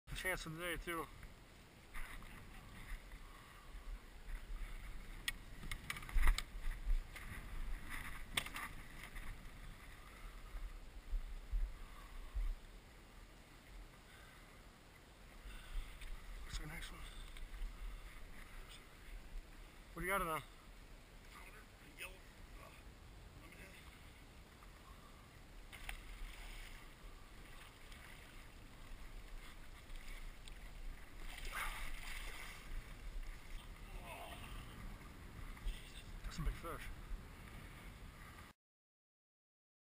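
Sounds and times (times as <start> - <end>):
water sloshing and splashing: 1.9 - 10.6, 25.6 - 36.4
wind rumble on microphone: 1.9 - 12.7
water lapping against boat hull: 23.6 - 38.5.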